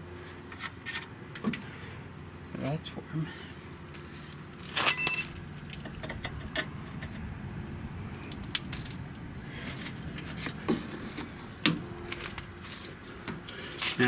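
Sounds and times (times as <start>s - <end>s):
metal tools clinking: 4.7s - 5.4s, 8.6s - 9.0s.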